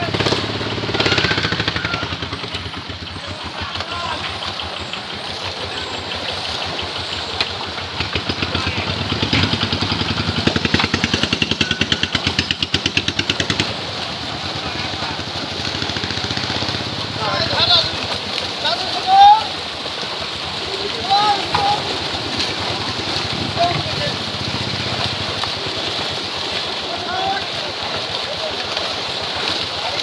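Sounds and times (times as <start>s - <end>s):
fish thrashing and splashing in net: 0.0s - 30.0s.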